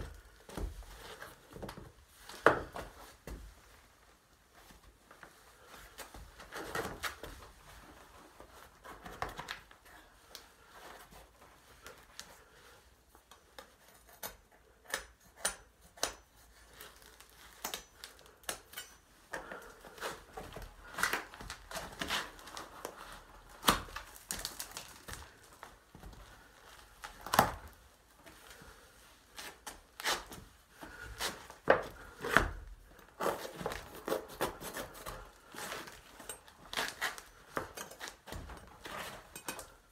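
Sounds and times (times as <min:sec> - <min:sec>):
knocks scrapes and tearing: 0:19.5 - 0:25.8, 0:26.4 - 0:39.9.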